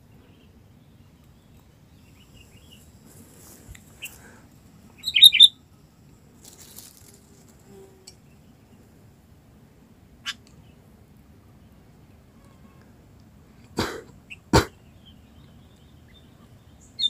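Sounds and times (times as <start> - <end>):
birds chirping: 0.0 - 7.1, 14.1 - 17.0
wings fluttering: 6.2 - 8.0.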